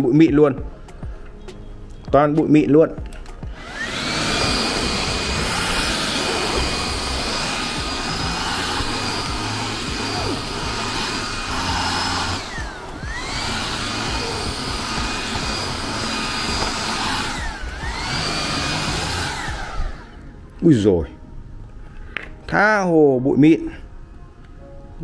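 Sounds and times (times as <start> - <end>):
handheld vacuum motor whining: 3.5 - 20.2.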